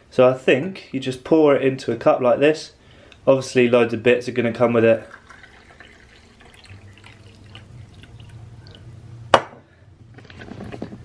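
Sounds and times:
coffee trickling into mug: 4.9s - 8.9s.

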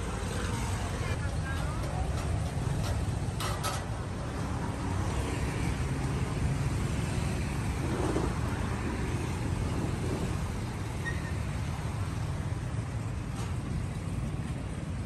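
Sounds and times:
cars passing: 0.0s - 15.0s
low traffic rumble: 0.0s - 15.0s
motorbikes passing: 4.0s - 13.2s.

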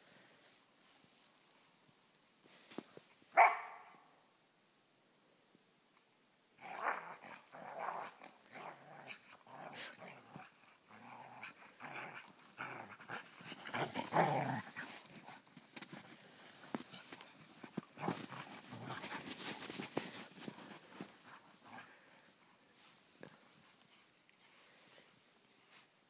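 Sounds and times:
dogs growling: 6.6s - 15.4s, 17.6s - 22.1s
scuffling in snow: 13.3s - 21.7s.

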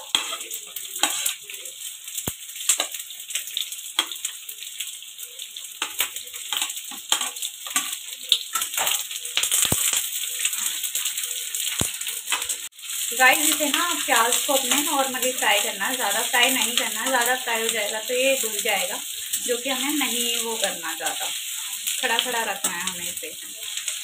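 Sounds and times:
oil sizzling in frying pan: 0.0s - 24.0s
sharp pops and clicks: 5.8s - 10.1s, 11.7s - 12.5s.

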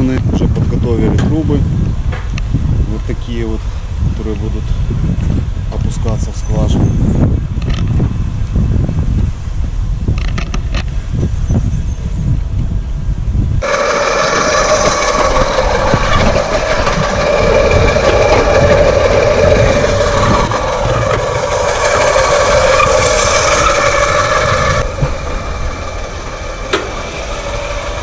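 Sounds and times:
wind buffeting microphone: 0.0s - 28.0s
drilling rig whining: 13.6s - 28.0s.

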